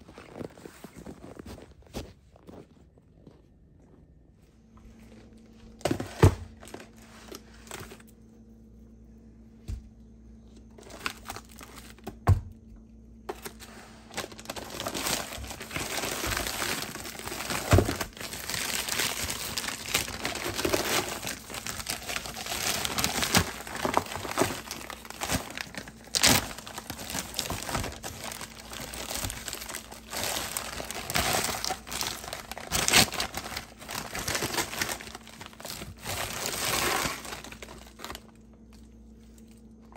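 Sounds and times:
plastic bags crinkling: 0:05.0 - 0:08.2, 0:10.5 - 0:12.2, 0:13.2 - 0:39.9.

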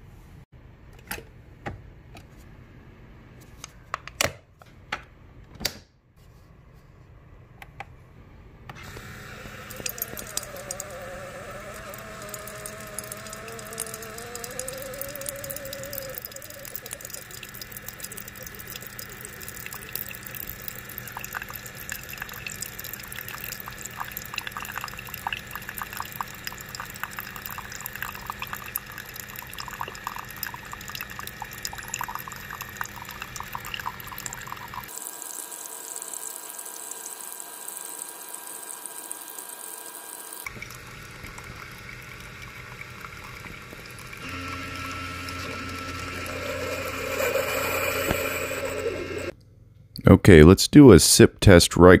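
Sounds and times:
coffee trickling into a mug: 0:08.8 - 0:49.3.

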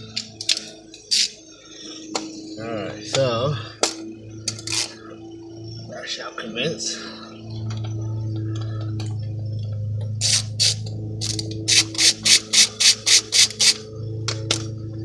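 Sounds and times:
steady low hum: 0:00.0 - 0:15.0
ratchet clicking: 0:10.2 - 0:13.8.

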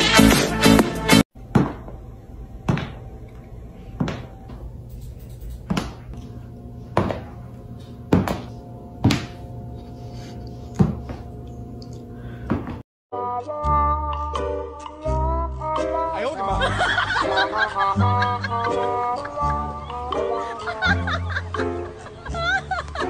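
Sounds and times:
slipper knocking on wooden floor: 0:04.0 - 0:04.3, 0:06.9 - 0:07.4, 0:08.1 - 0:09.4, 0:10.8 - 0:11.2.

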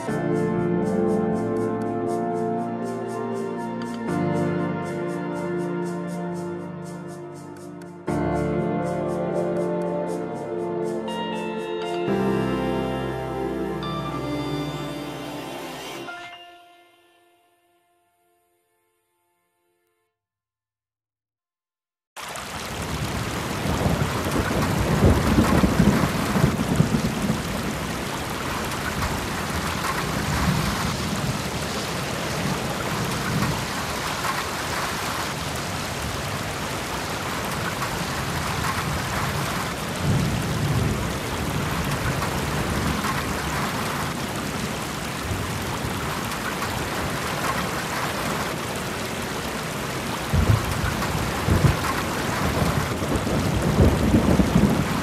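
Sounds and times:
steady rain: 0:00.0 - 0:06.4, 0:22.2 - 0:55.0
thunder rolling: 0:22.6 - 0:48.8, 0:50.1 - 0:55.0.

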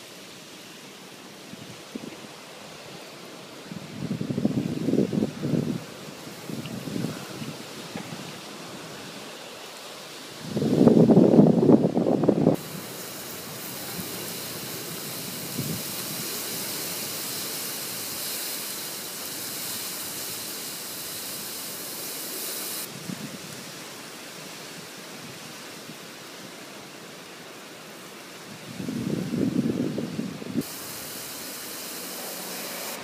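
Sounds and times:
torrential rain hissing: 0:00.0 - 0:33.0
wind buffeting microphone: 0:03.7 - 0:09.1, 0:10.4 - 0:18.3, 0:28.6 - 0:30.7.

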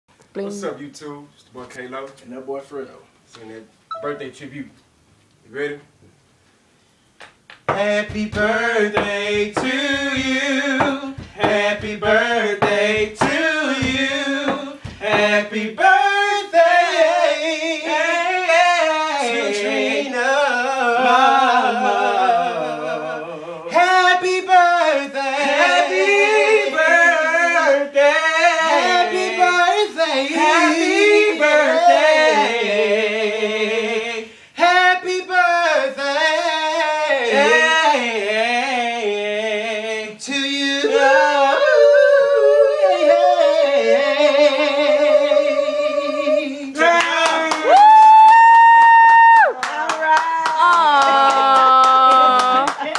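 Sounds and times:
two men singing a cappella: 0:07.6 - 0:48.4.

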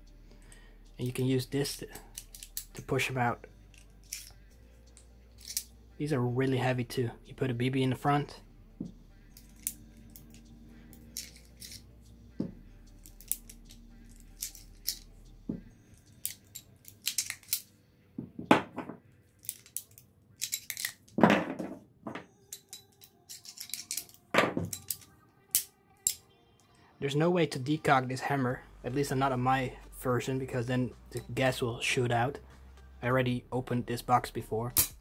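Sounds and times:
shells set on wooden table: 0:18.2 - 0:22.3.

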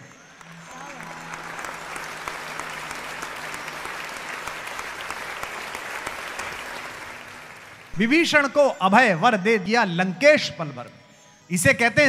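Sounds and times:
crowd applauding: 0:00.0 - 0:08.8.

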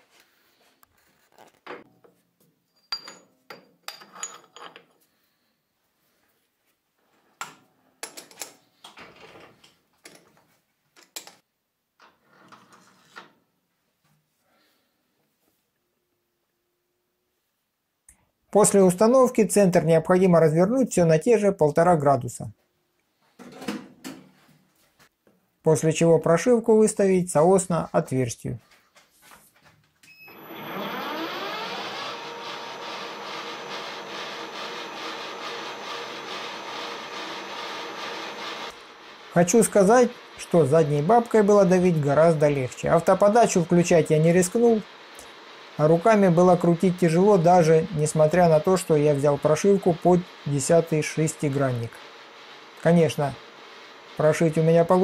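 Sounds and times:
metal lathe whining: 0:30.2 - 0:55.0.

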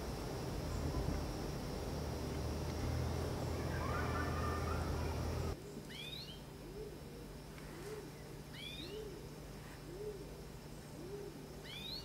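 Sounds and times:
nestlings begging chirps: 0:00.5 - 0:06.4, 0:08.1 - 0:09.1, 0:11.6 - 0:12.0
low hooting coo: 0:03.4 - 0:12.0.

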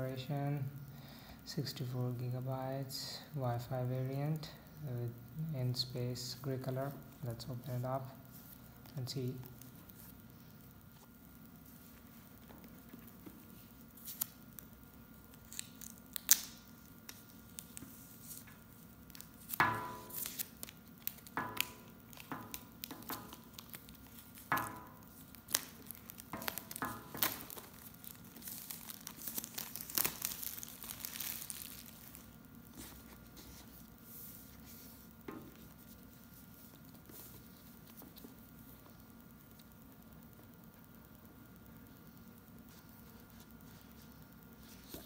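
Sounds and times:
paper packaging tearing: 0:15.4 - 0:17.7, 0:19.2 - 0:24.5, 0:25.4 - 0:32.3.

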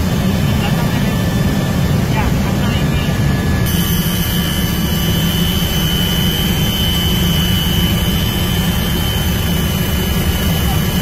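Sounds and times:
helicopter rotor rumble: 0:00.0 - 0:11.0
steady high whine: 0:00.0 - 0:11.0.

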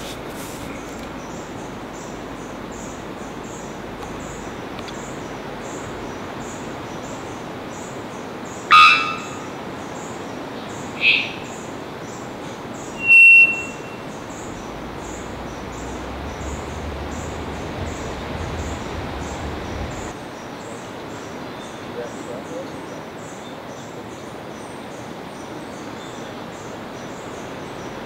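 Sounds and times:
steady hiss: 0:00.0 - 0:08.7, 0:09.3 - 0:21.5
bellbird high whistle: 0:08.7 - 0:09.5, 0:11.0 - 0:11.5, 0:13.0 - 0:14.1
bellbird bonk call: 0:08.7 - 0:09.6, 0:11.0 - 0:11.5, 0:13.0 - 0:14.3.

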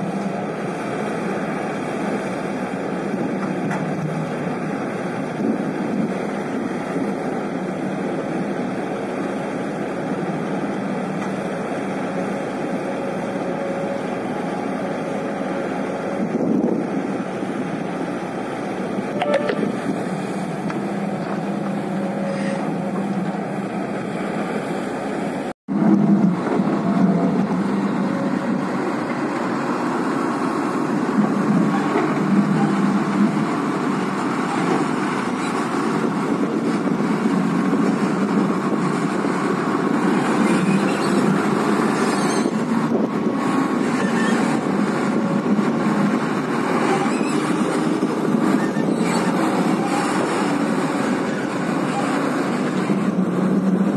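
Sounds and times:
excavator diesel engine: 0:00.0 - 0:53.9
truck engine pulling away: 0:19.7 - 0:53.9.

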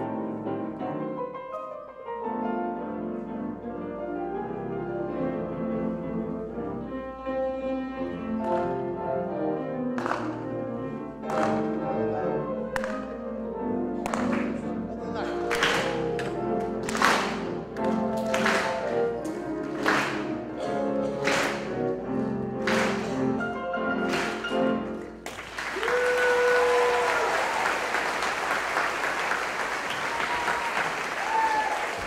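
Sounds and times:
pianos playing loud chords: 0:00.0 - 0:25.8
audience applause: 0:15.3 - 0:21.9, 0:22.6 - 0:23.4, 0:24.0 - 0:32.0
audience cheering: 0:25.3 - 0:32.0.

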